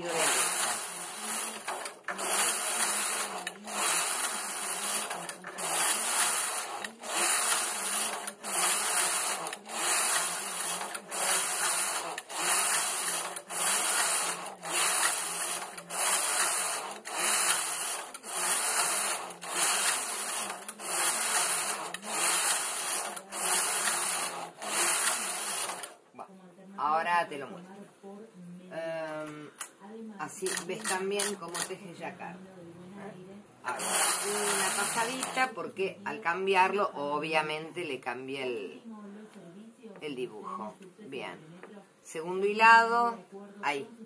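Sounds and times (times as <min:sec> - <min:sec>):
knitting machine carriage clattering: 0:00.0 - 0:26.0, 0:33.7 - 0:35.5.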